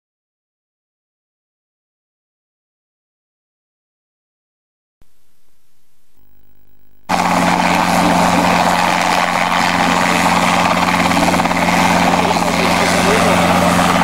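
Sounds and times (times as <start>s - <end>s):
propeller engines droning: 5.1s - 14.0s.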